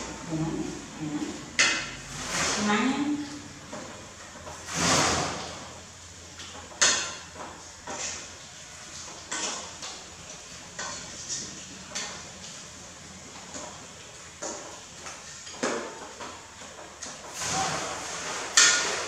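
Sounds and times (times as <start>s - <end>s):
metal ladle scraping a pot: 17.3s - 19.0s.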